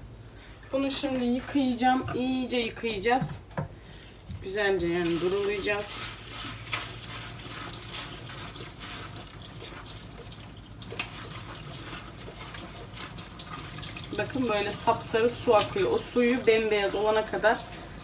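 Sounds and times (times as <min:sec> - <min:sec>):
tap water running: 0:03.2 - 0:18.0
lentils clicking and splashing: 0:04.8 - 0:18.0.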